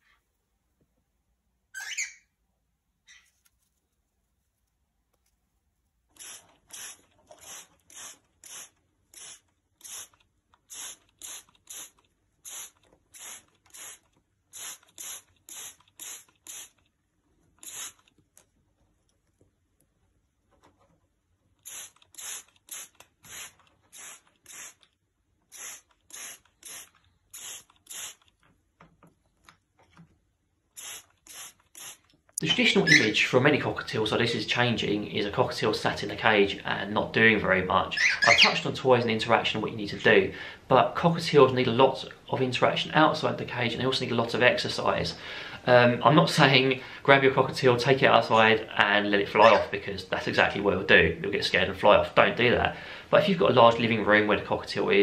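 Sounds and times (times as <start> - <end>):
spray bottle hissing sprays: 6.2 - 16.9, 17.6 - 18.1, 21.6 - 28.3, 30.7 - 32.1.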